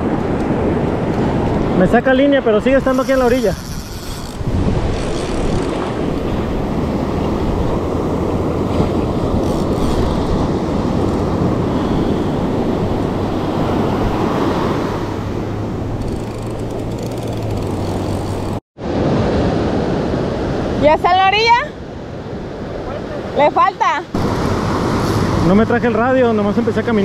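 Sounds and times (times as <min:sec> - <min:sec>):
wind buffeting microphone: 0:00.0 - 0:21.3
surf washing on shore: 0:00.0 - 0:27.0.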